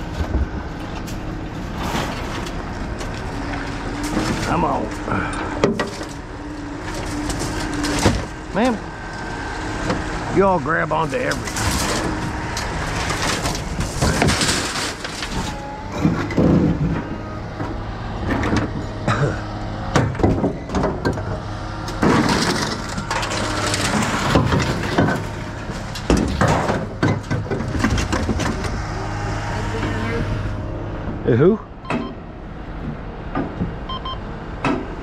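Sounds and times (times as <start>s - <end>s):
low hum: 0.0s - 35.0s
chain-link fencing scraping and rattling: 11.1s - 15.7s, 22.0s - 26.9s
metal parts clanking: 11.1s - 17.1s, 21.9s - 28.7s.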